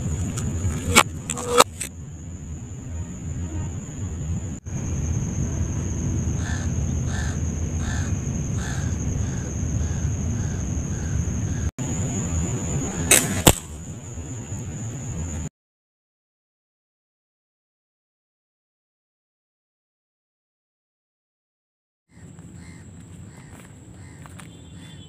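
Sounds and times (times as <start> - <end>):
steady low rumble: 0.0 - 15.5
crow cawing: 6.4 - 11.7, 22.1 - 25.0
slingshot cracks: 13.1 - 13.8.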